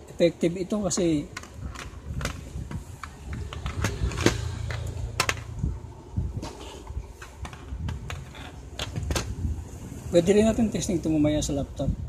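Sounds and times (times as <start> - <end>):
plastic clicks and knocks: 1.0 - 5.6
low handling rumble: 1.8 - 9.8.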